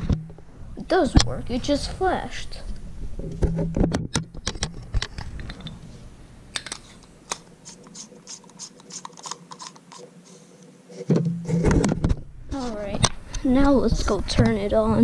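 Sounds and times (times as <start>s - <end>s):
small hard parts clicking: 6.5s - 10.1s.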